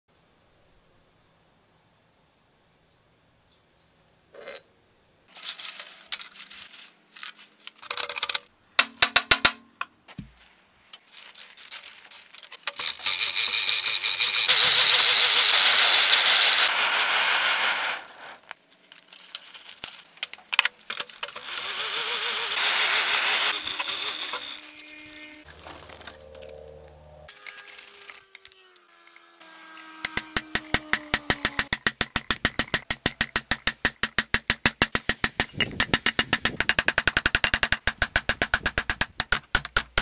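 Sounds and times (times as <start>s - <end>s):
fire lighting with rushing hiss: 15.7s - 18.6s.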